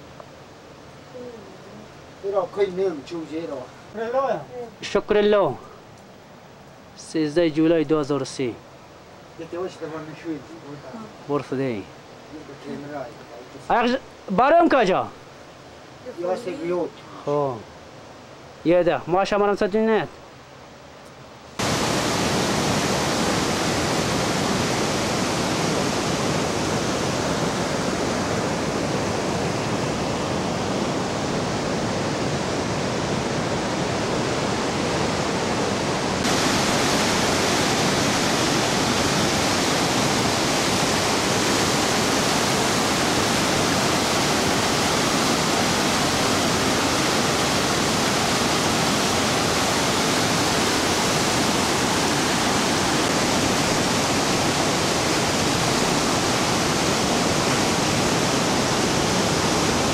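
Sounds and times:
stream running over stones: 21.6 - 28.0, 36.2 - 59.9.

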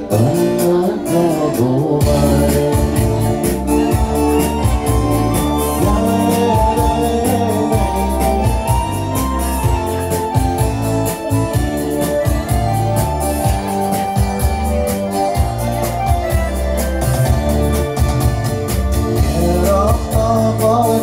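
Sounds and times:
man singing into a microphone: 0.0 - 9.9, 19.1 - 21.0
electronic keyboard backing track: 0.0 - 21.0.

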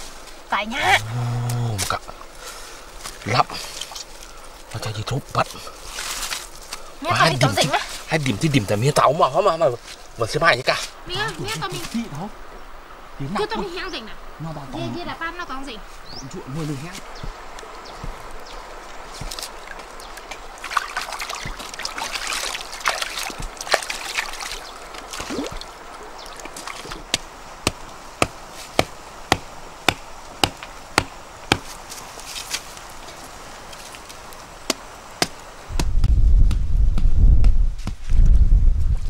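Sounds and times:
river water trickling and splashing: 0.0 - 0.8, 2.0 - 35.7
hatchet chopping wood: 27.0 - 31.8, 34.7 - 38.0.

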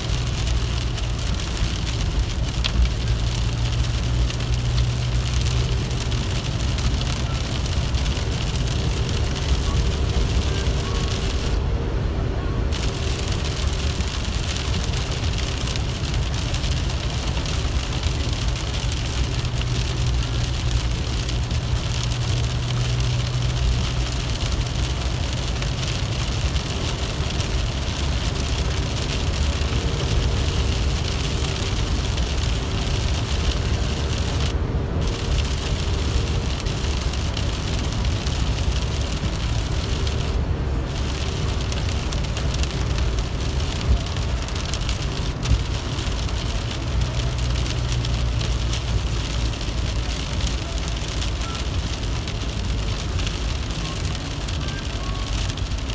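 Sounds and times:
low engine hum: 0.0 - 55.9
rain hitting windshield and roof: 0.0 - 55.9
tyres hissing on wet road: 0.0 - 55.9.

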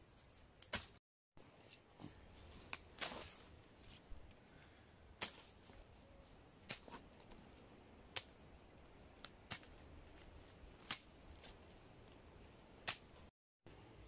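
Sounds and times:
sickle swishing through stems: 0.0 - 4.3.

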